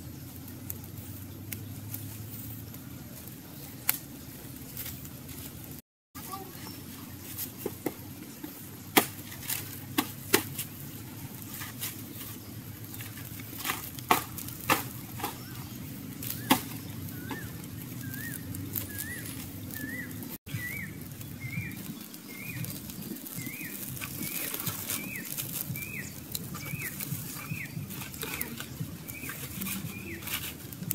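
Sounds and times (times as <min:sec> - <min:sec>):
fire crackling and popping: 0:00.0 - 0:30.9
bird chirping: 0:14.9 - 0:30.6.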